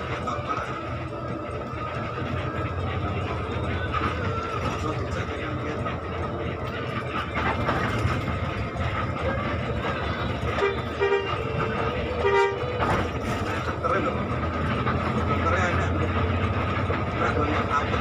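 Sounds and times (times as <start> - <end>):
bus engine and road rumble: 0.0 - 18.0
bus horn: 8.0 - 15.8.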